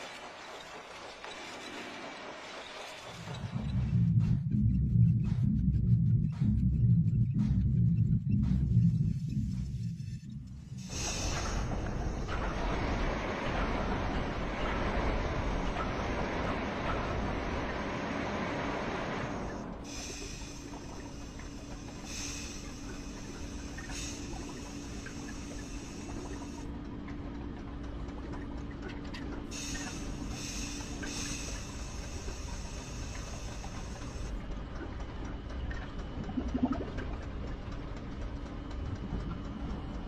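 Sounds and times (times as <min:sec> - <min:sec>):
machinery rumble with hum: 0:00.0 - 0:40.0
pulsing steam hiss: 0:10.7 - 0:26.7, 0:29.5 - 0:34.4.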